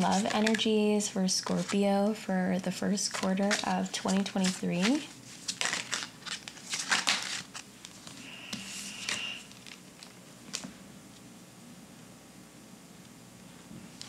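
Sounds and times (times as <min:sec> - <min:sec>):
cards shuffled and slapped: 0:03.1 - 0:08.2
faint high steady tone: 0:08.2 - 0:09.5.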